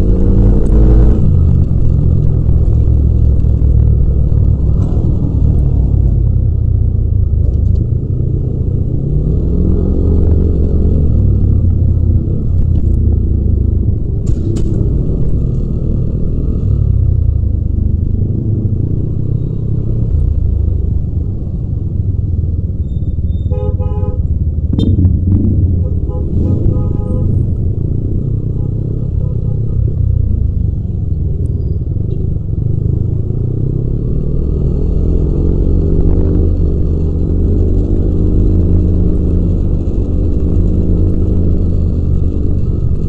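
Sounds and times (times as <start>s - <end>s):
horn toot: 25.8s - 27.5s.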